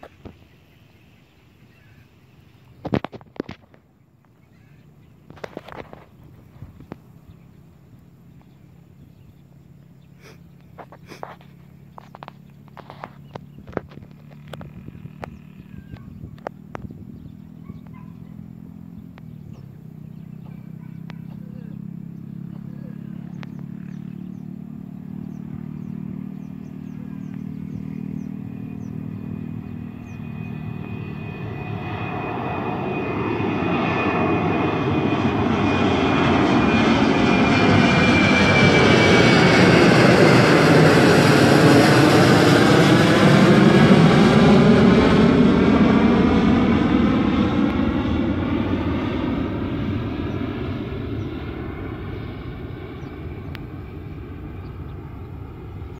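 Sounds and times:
jet airliner taking off: 21.8 - 55.9.

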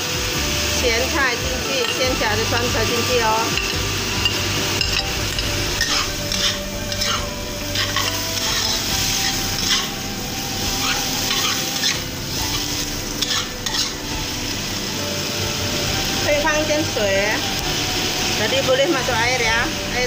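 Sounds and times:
food sizzling in a wok: 0.0 - 20.0
utensil scraping a pan: 3.1 - 14.7.

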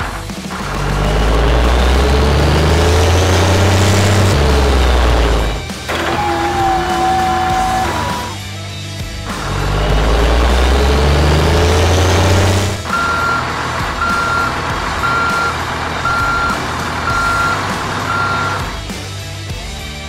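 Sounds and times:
toy diesel engine revving: 0.0 - 8.4, 9.3 - 18.9
reversing beeps: 12.9 - 18.7.

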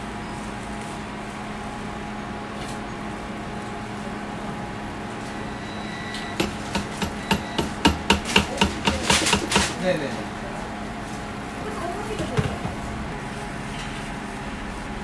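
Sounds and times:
kitchen machinery humming: 0.0 - 15.0
sharp knocks: 6.4 - 9.8.

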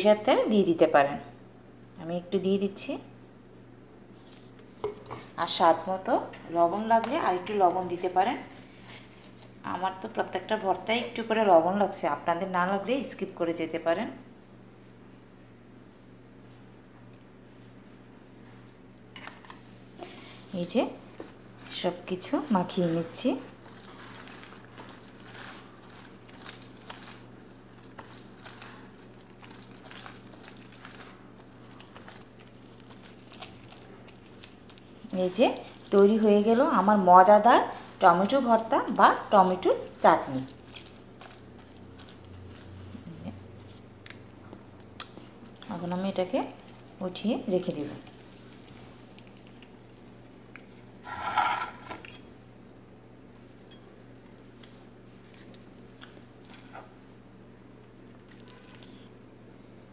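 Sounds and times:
low steady hum: 0.0 - 59.9
wet squelching of mashed tomato: 20.0 - 51.0, 53.3 - 57.0, 58.0 - 59.1
scrape on a plate: 51.0 - 52.0.

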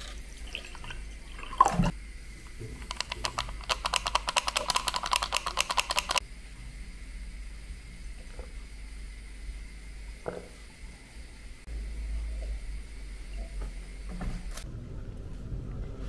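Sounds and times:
water glugging into mug: 0.0 - 1.9.

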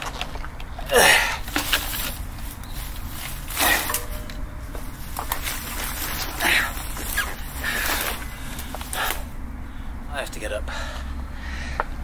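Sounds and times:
footsteps scuffling on rough ground: 0.0 - 9.4
loud rustle: 1.4 - 9.4.

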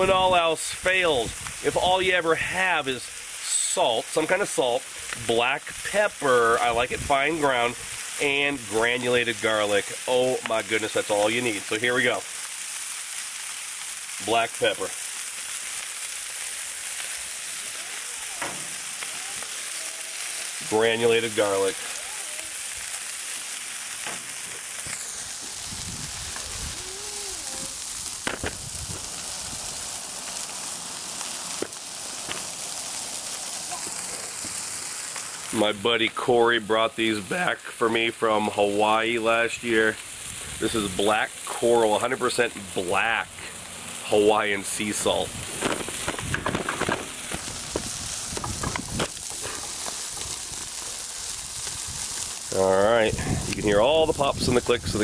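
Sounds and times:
burger patties sizzling on griddle: 0.0 - 55.0
sharp pops and clicks: 28.0 - 29.7, 31.5 - 32.8, 45.5 - 52.4.

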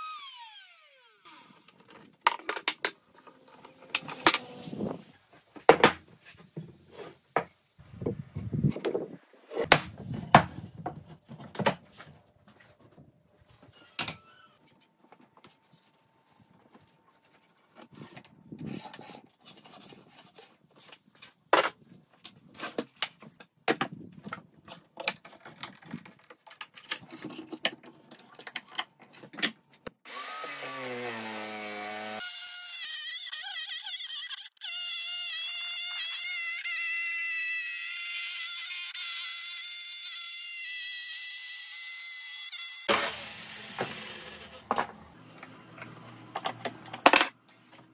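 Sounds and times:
electric jigsaw cutting wood: 0.0 - 1.7, 30.0 - 34.8, 41.6 - 45.0
wooden boards and tools clattering: 1.7 - 7.6, 8.7 - 15.8, 16.6 - 29.8, 42.9 - 47.9.

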